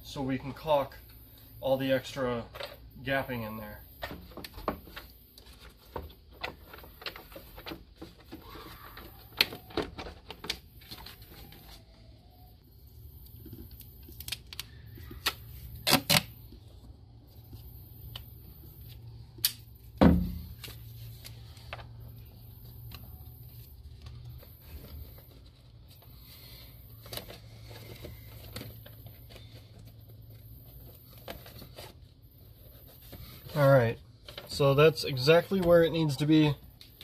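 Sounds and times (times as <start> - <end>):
heavy thump: 20.0 - 20.5.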